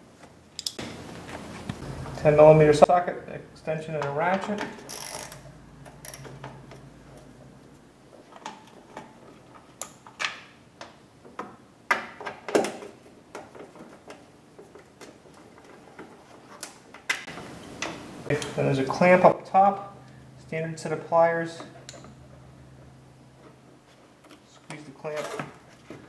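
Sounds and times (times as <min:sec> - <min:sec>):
hand ratchet clicking: 0:04.8 - 0:06.9.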